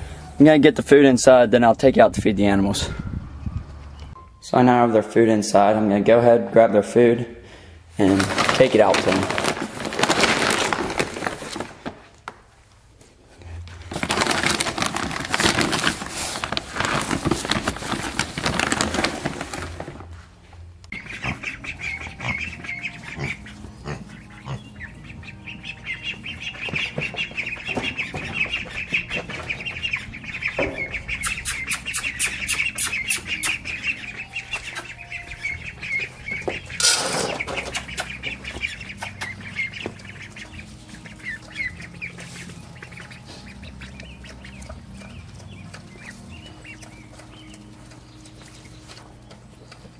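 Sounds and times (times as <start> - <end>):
feed bags rustling: 7.9 - 12.3, 13.5 - 20.6
ducks calling: 20.9 - 49.9.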